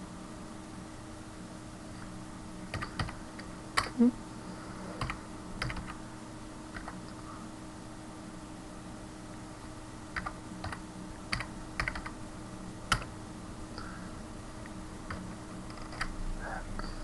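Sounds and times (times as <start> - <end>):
steady low hum: 0.0 - 17.0
computer keyboard key clicks: 5.0 - 6.0.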